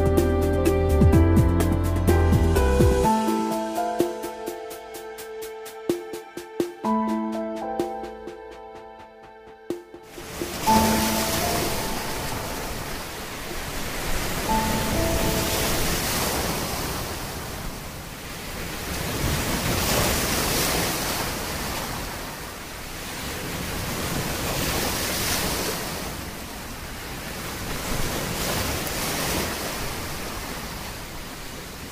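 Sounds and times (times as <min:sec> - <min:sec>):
ocean waves washing in: 0:02.0 - 0:31.9.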